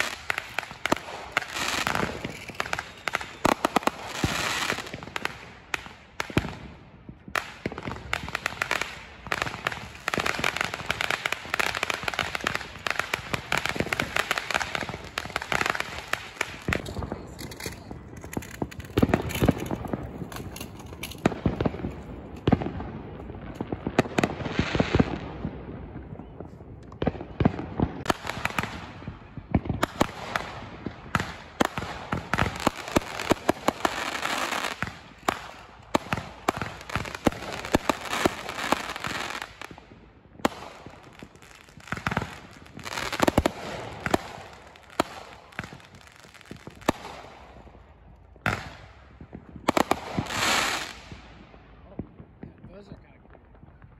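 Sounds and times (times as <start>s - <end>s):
fireworks shells bursting: 0.0s - 5.8s, 8.4s - 22.6s
fireworks crackling: 0.0s - 53.9s.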